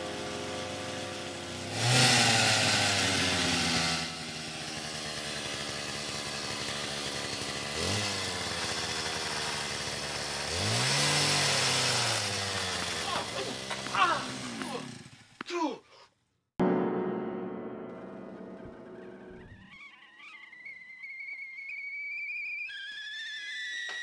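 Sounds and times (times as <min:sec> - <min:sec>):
engine revving and idling: 0:00.0 - 0:15.4.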